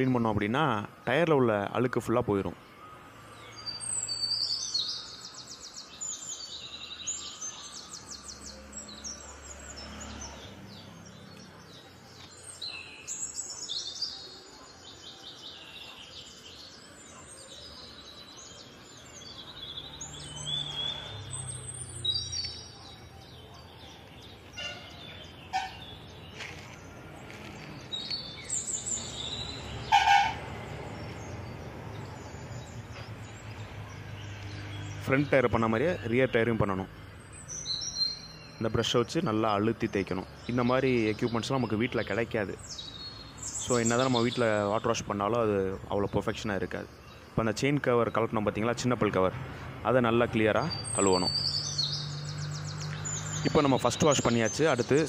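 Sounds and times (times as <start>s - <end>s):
birds chirping and trilling: 0.0s - 55.0s.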